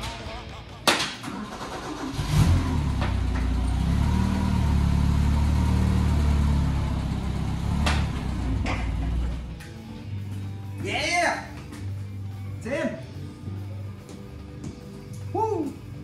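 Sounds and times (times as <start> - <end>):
forklift engine starting and idling: 0.0 - 9.6.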